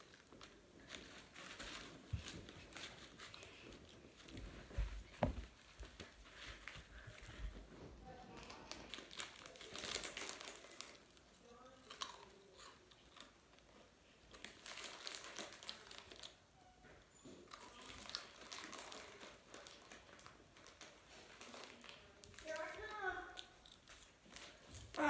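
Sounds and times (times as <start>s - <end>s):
plastic wrapper crinkling: 0.0s - 7.3s, 8.3s - 12.4s, 14.3s - 16.4s, 17.6s - 25.0s
crunching dry snack: 8.4s - 13.4s, 14.3s - 16.4s, 17.5s - 24.6s.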